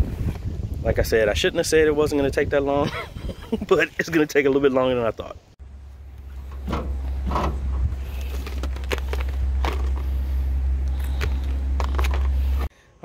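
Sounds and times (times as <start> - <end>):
steady low rumble: 5.4 - 12.7
knocks and rattles of gear: 6.5 - 10.2, 11.0 - 12.7.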